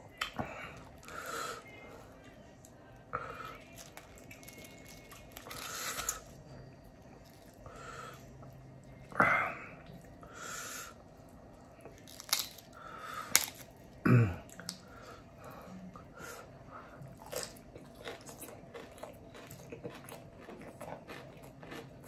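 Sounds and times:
food pulled apart by hand: 12.0 - 13.7
chewing: 17.0 - 22.0.

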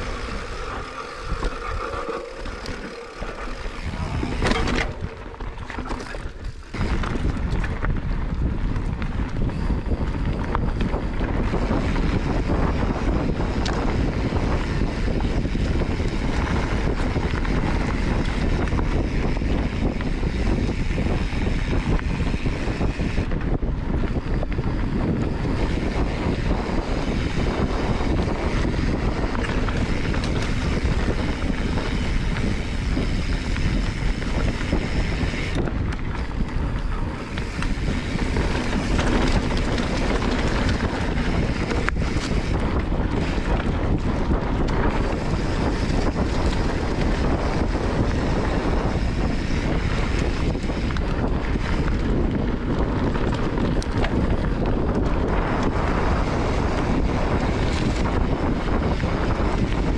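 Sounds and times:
bike rattles and knocks: 0.0 - 59.9
bike tyres on dirt: 0.0 - 59.9
wind buffeting microphone: 0.0 - 59.9.

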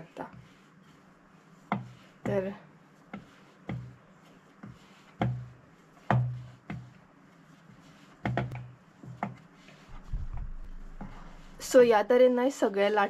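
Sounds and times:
rolling pin knocking on board: 5.2 - 6.9, 8.2 - 9.4.

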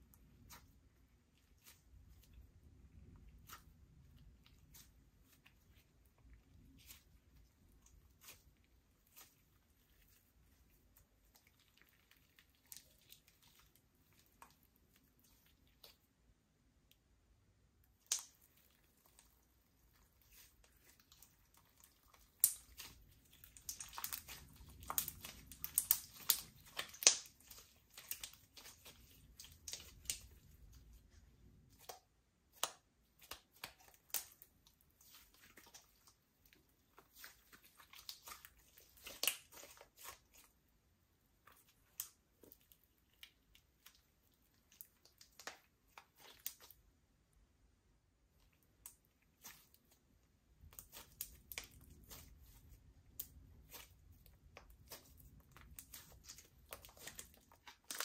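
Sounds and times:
slime clicking and popping: 22.1 - 30.4.

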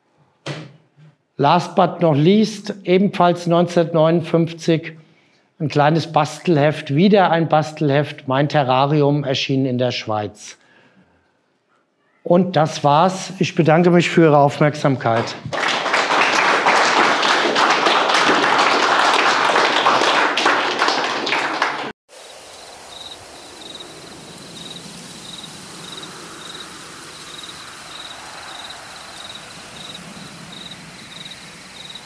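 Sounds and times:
audience applause: 15.1 - 22.0, 27.4 - 32.0.

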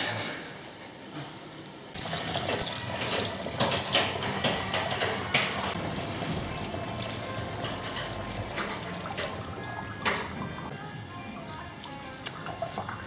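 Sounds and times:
liquid pouring and splashing: 2.0 - 10.7.

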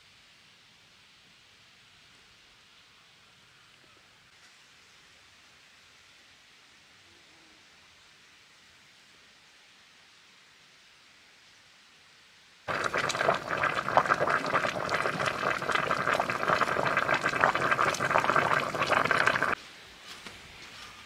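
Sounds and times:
food bubbling in a clay pot: 12.7 - 19.6.

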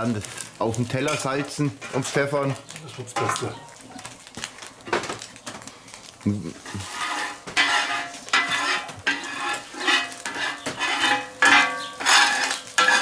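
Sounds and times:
egg frying and sizzling: 0.0 - 13.0
metal spatula scraping a steel plate: 6.6 - 13.0.

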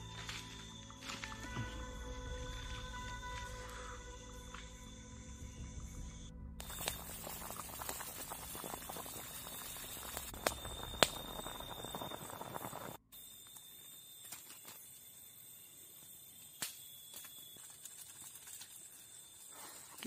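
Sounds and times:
forest insects trilling: 0.0 - 20.0
crackling noise: 5.5 - 15.3, 15.9 - 20.0.

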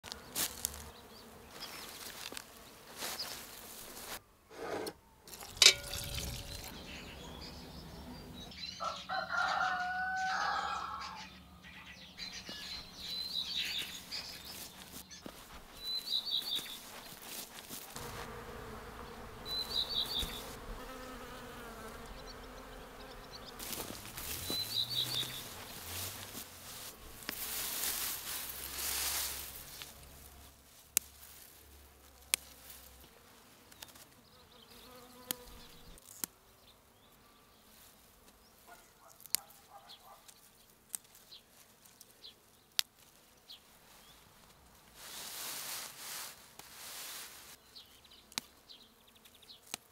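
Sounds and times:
insects buzzing: 0.0 - 4.2, 12.2 - 49.9
grass and flowers rustling: 0.0 - 8.4, 12.2 - 36.4, 37.0 - 48.9
bird chirping: 6.0 - 17.2, 19.0 - 20.5, 21.8 - 26.3
rooster crowing: 8.7 - 11.3.

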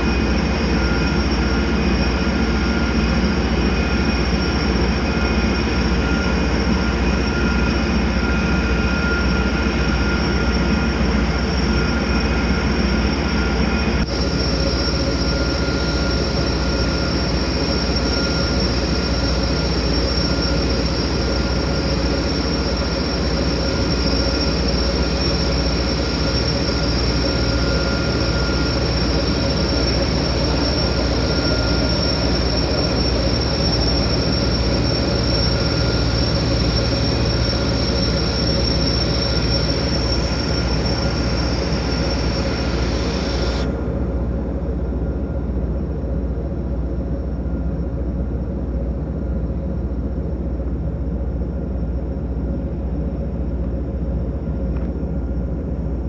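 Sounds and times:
barge engines droning: 0.0 - 44.6.

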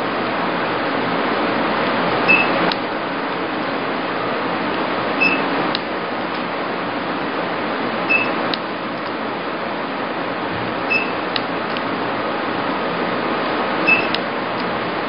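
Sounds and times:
cooling fan hiss: 0.0 - 15.0
short high beep: 2.3 - 2.6, 5.2 - 5.5, 8.1 - 8.4, 10.9 - 11.2, 13.9 - 14.2
lamp flash click: 13.9 - 14.7.

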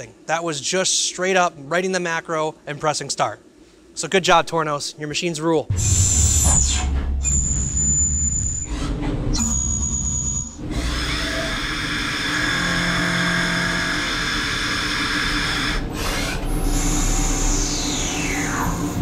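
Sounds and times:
lathe machining high whine: 9.4 - 19.0.

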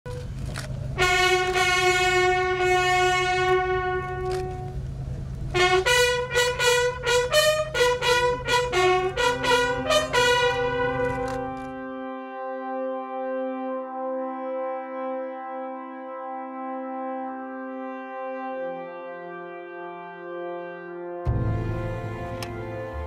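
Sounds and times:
bugles playing a call: 0.1 - 4.8, 5.4 - 23.0.

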